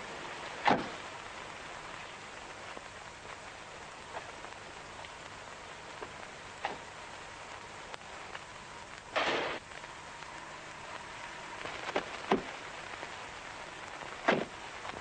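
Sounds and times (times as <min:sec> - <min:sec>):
steady hiss: 0:00.0 - 0:15.0
faint ticks: 0:01.9 - 0:15.0
sharp loud crack: 0:09.1 - 0:09.6.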